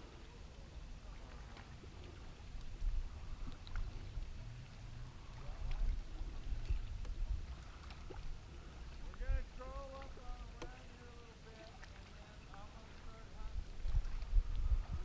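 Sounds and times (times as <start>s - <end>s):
low rumble: 0.0s - 10.7s, 12.9s - 15.0s
water lapping against boat hull: 0.0s - 15.0s
faint clicks: 1.5s - 8.2s, 9.9s - 10.9s.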